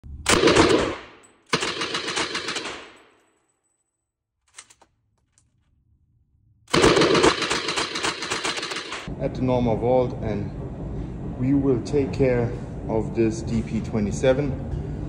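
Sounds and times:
machine gun automatic bursts: 0.3 - 3.0, 6.7 - 9.1.

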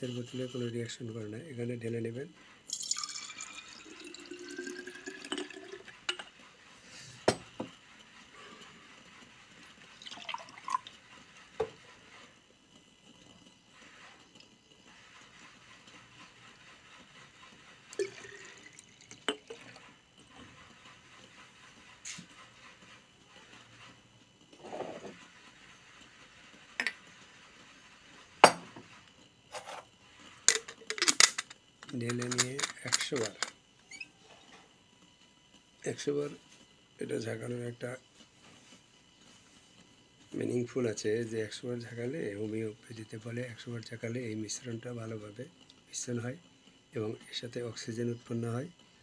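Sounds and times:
liquid pouring into glass jar: 2.7 - 6.0, 9.9 - 10.9, 18.0 - 19.8
soft scrape of glass bottle: 24.6 - 25.3, 28.7 - 29.9.

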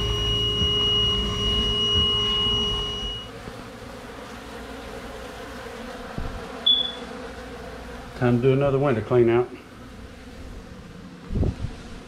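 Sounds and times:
short high-pitched tone: 0.0 - 3.3
honey bees buzzing: 0.0 - 12.0.

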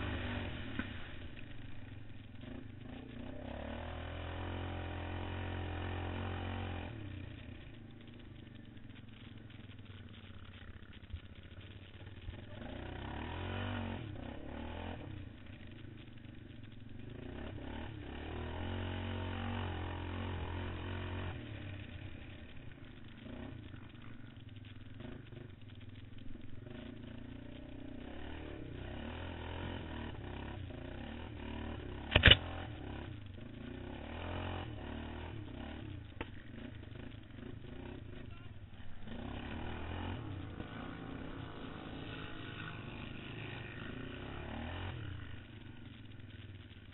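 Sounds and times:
muffled quad bike engine revving: 0.0 - 46.9.

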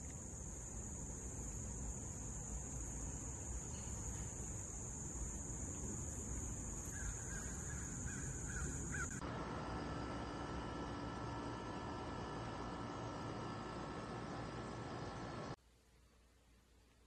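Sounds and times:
insects droning: 0.0 - 15.6
bird calling: 6.8 - 9.2.

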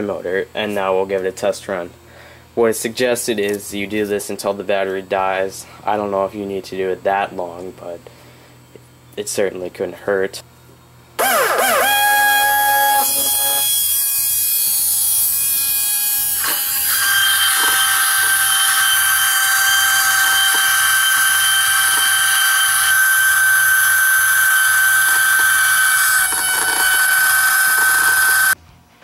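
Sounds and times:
motor high whine: 11.2 - 28.6.

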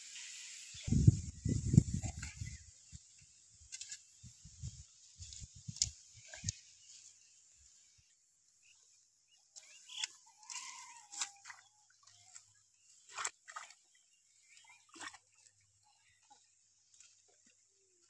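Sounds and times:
water splashing: 9.5 - 18.0.

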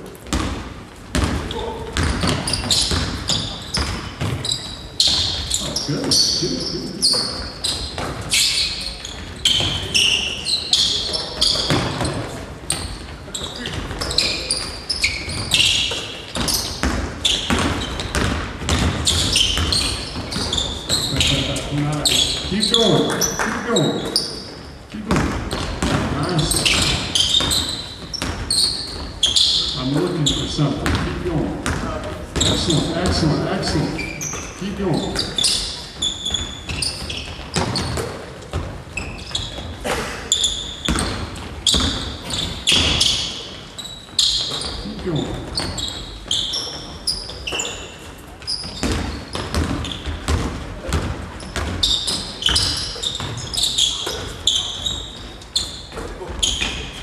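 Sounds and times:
sneakers squeaking: 0.0 - 57.0
basketball bouncing on hardwood: 0.2 - 6.2, 15.4 - 21.5, 25.1 - 29.2, 30.8 - 34.4, 36.0 - 39.7, 40.8 - 43.2, 48.6 - 54.2.

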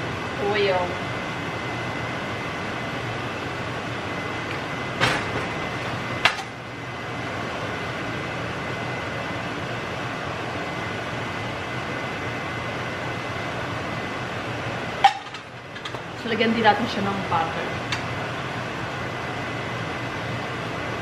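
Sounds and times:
kitchen exhaust fan whooshing: 0.0 - 21.0
sharp knocks at stove: 5.0 - 5.5.

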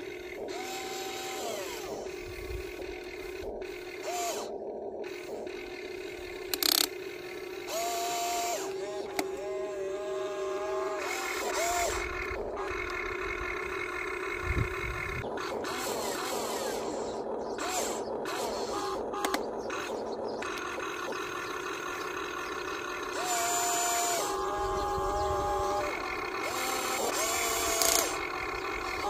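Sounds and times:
electric motors whining: 0.0 - 29.0
steady hum: 0.0 - 29.0.

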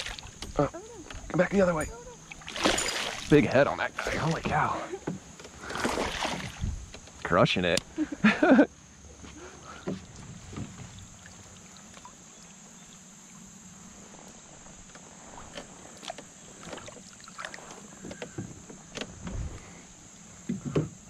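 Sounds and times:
small water splashes: 0.0 - 0.5, 2.2 - 4.7, 5.6 - 6.7, 9.9 - 13.1, 15.5 - 17.8
faint steady hiss: 0.0 - 21.0.

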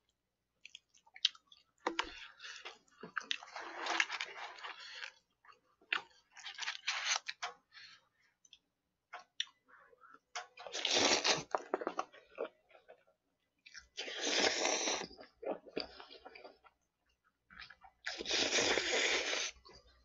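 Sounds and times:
wet chewing and mouth sounds: 0.6 - 20.0
loud noodle slurp: 10.7 - 11.5, 14.0 - 15.1, 18.1 - 19.6.

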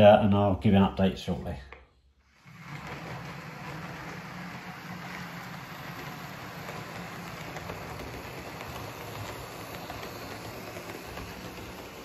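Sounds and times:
model train running on track: 2.3 - 12.0
motor hum: 2.3 - 12.0
wheels clicking over rail joints: 2.5 - 12.0.

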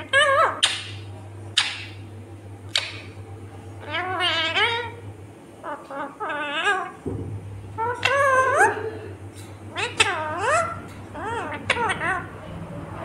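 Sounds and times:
parakeet screeching: 0.0 - 1.0, 2.7 - 3.2, 3.8 - 5.0, 5.6 - 7.0, 7.8 - 8.8, 9.7 - 12.4
parakeet wavering calls: 0.0 - 2.0, 2.7 - 5.0, 5.6 - 7.0, 7.7 - 8.9, 9.6 - 12.4.

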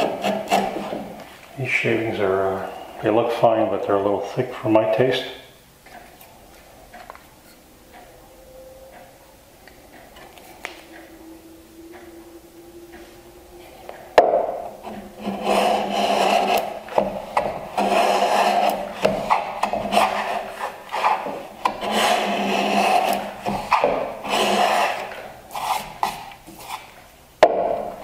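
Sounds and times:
hand plane rasping strokes: 0.0 - 1.2, 13.8 - 26.9.

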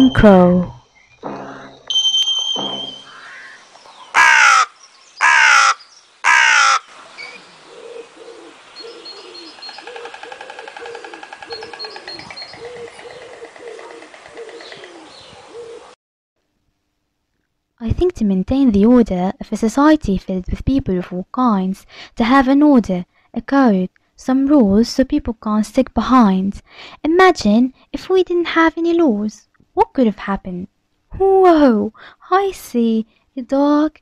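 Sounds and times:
bird calls: 0.8 - 16.0
high steady tone: 1.2 - 3.6
crow cawing: 4.1 - 6.9, 7.8 - 15.7.

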